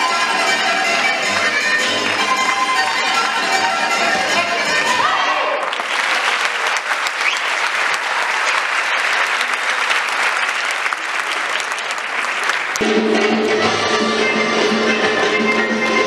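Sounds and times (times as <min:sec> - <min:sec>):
large audience applauding: 0:05.4 - 0:12.9.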